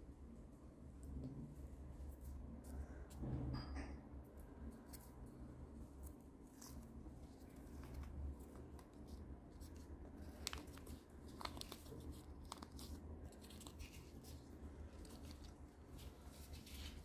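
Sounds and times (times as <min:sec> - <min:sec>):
paper liner crinkling: 0:04.5 - 0:17.0.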